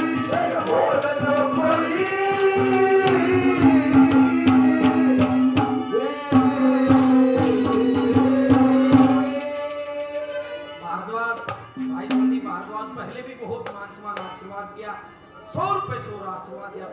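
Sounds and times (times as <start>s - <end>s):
hand drum strokes: 11.4s - 12.6s
harmonium chord: 11.6s - 13.3s
sliding melody line: 11.7s - 13.0s.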